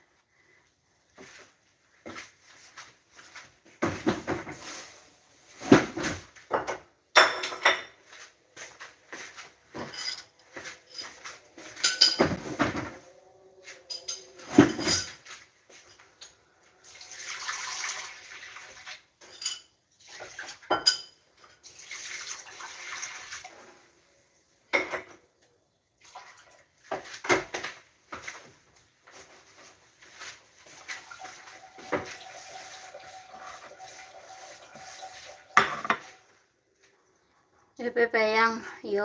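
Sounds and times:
dishes and utensils clinking: 6.5 - 8.3, 9.7 - 16.5, 19.2 - 21.8, 30.2 - 36.3
kitchen tap running: 16.9 - 19.1, 20.1 - 23.6, 30.8 - 36.2.

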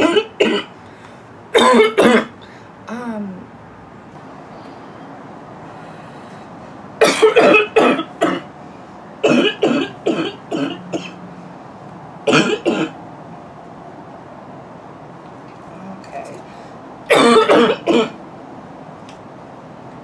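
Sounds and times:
girl barking cough: 0.0 - 0.7, 1.6 - 2.4, 7.0 - 8.5, 9.2 - 11.2, 12.3 - 13.0, 17.1 - 18.2.

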